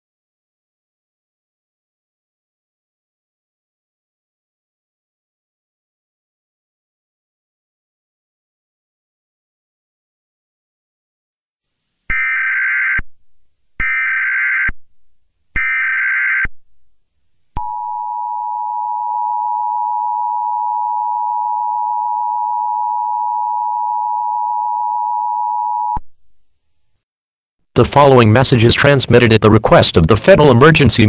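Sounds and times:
two-tone attention signal: 0:17.6 - 0:26.0.

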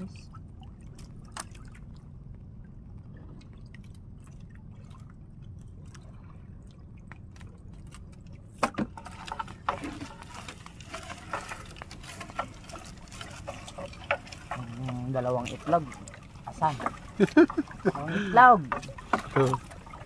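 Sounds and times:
steady low rumble: 0:00.0 - 0:20.0
water lapping against boat: 0:00.0 - 0:20.0
splashing and dripping net: 0:07.4 - 0:20.0.

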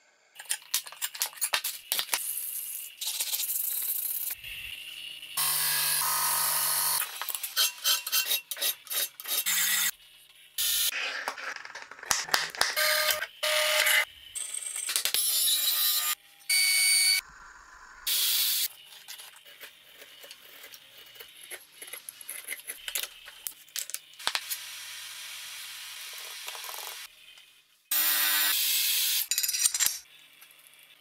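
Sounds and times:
table saw cutting wood: 0:05.4 - 0:09.9, 0:12.7 - 0:14.1, 0:15.1 - 0:17.2, 0:18.0 - 0:18.7, 0:27.9 - 0:29.2.

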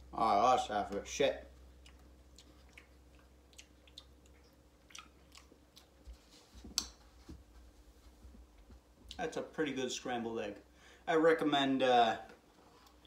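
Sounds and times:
person chewing food: 0:01.5 - 0:07.0.

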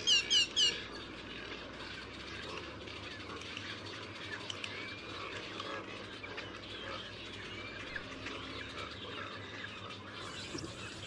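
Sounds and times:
small birds chirping and whistling: 0:00.0 - 0:11.0
steady hiss: 0:10.2 - 0:11.0.

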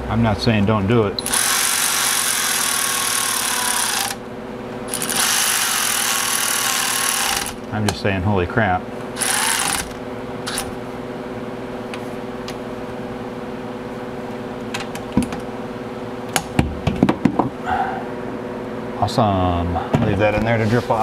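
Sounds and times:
steady hum: 0:00.0 - 0:21.0
electric ratchet driving bolt: 0:01.2 - 0:04.2, 0:04.9 - 0:07.6, 0:09.2 - 0:10.8.

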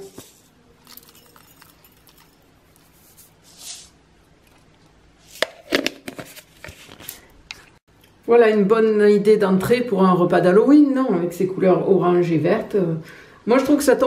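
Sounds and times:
soft rustle: 0:00.1 - 0:04.0.

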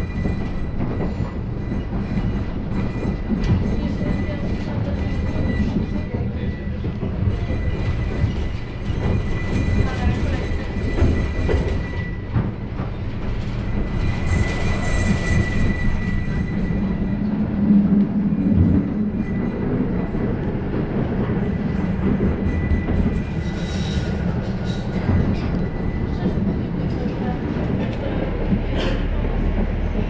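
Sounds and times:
passing tram rush: 0:00.0 - 0:30.0
tram wheels rumbling on rails: 0:00.0 - 0:30.0.

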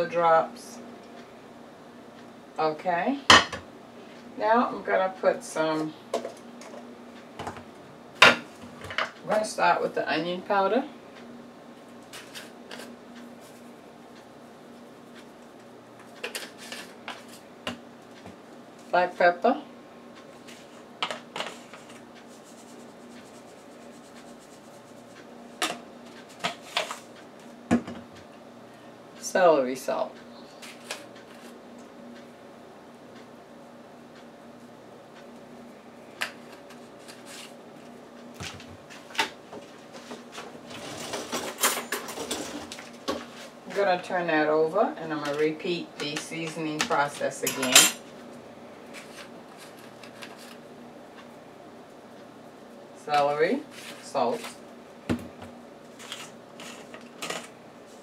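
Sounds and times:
faint steady hum: 0:00.0 - 0:58.0
knocks on kitchen countertop: 0:55.1 - 0:55.5.

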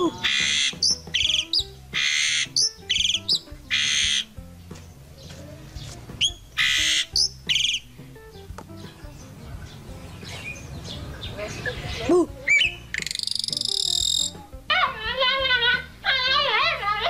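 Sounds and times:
bird whistling and chattering: 0:00.0 - 0:04.4, 0:06.2 - 0:09.0, 0:09.7 - 0:14.6
background music with low melody: 0:00.0 - 0:17.0
bird harsh rasping screech: 0:00.1 - 0:04.3, 0:06.3 - 0:07.8, 0:12.6 - 0:14.4.

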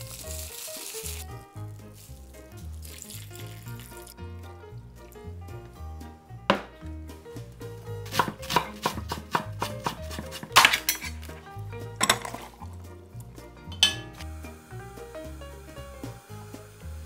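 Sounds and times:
knife chopping on wooden board: 0:06.5 - 0:06.7, 0:08.0 - 0:11.2.

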